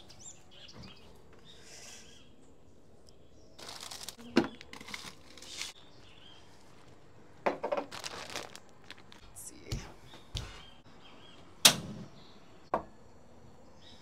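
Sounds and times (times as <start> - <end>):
plastic bag crinkling: 3.6 - 5.8, 7.6 - 9.4.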